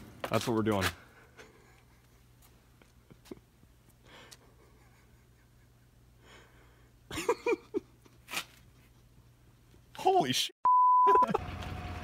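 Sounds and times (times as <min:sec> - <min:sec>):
man laughing breathily: 0:01.1 - 0:08.2.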